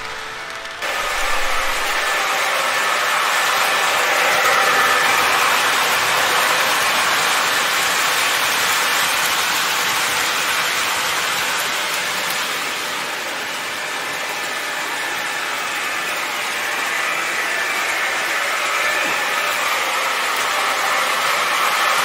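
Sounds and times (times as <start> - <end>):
model train wheels rumbling on rail: 0.0 - 22.0.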